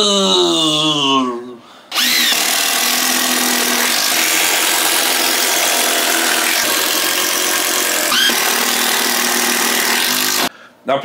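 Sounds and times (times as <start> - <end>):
cordless drill driving screw: 1.9 - 10.5.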